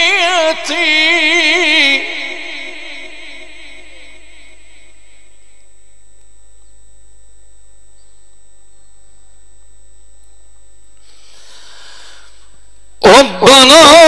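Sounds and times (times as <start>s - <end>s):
chanted recitation echoing: 0.0s - 5.6s, 11.9s - 14.0s
mains hum with hiss: 0.0s - 14.0s.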